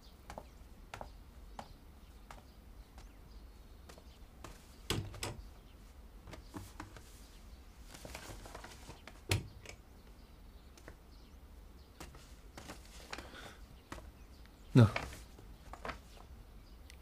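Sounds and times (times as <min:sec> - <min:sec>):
wooden cabinet knocks and clicks: 0:09.2 - 0:09.8.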